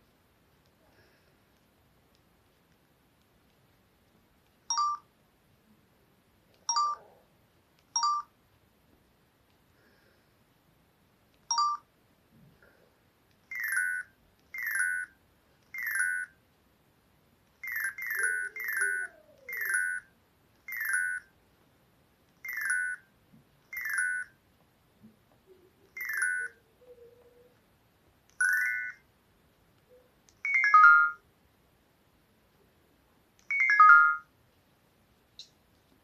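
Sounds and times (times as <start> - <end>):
phone key beeps: 4.7 - 5.1, 6.7 - 7.0, 8.0 - 8.3, 11.5 - 11.8, 13.5 - 15.1, 15.8 - 16.3, 17.6 - 20.1, 25.9 - 26.6, 28.4 - 29.0, 30.4 - 31.2, 33.5 - 34.3.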